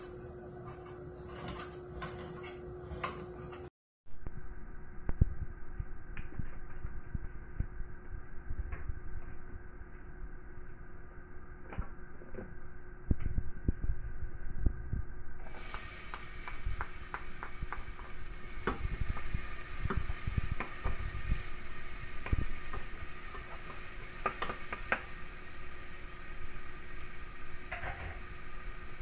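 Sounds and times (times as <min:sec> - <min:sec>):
wooden spoon scraping a pot: 0:00.6 - 0:03.7
food sizzling in hot oil: 0:15.4 - 0:29.0.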